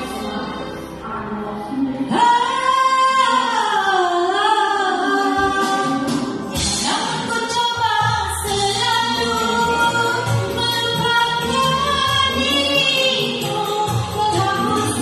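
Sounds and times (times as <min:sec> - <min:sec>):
backing track music: 0:00.0 - 0:15.0
woman singing karaoke: 0:00.0 - 0:15.0.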